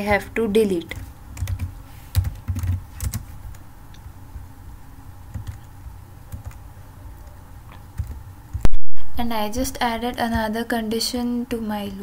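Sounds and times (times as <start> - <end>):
typing on computer keyboard: 0.9 - 3.3, 5.3 - 5.7, 6.3 - 6.6, 8.0 - 8.7.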